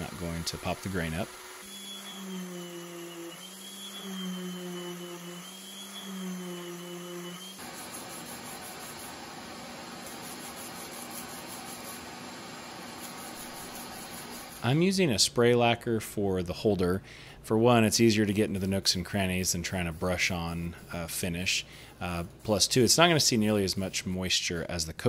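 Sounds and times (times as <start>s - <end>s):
orbit sander humming: 0.0s - 14.8s.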